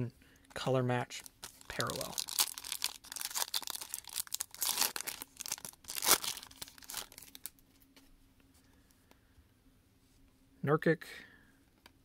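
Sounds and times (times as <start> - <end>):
foil wrapper tearing and crinkling: 1.4 - 7.5.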